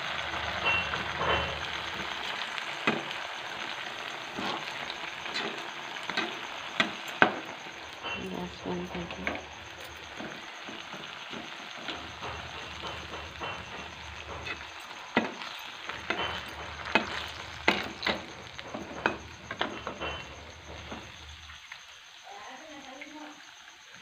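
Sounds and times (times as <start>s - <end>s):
oil sizzling: 0.0s - 24.0s
metal spoon clinking against pan: 11.8s - 21.4s.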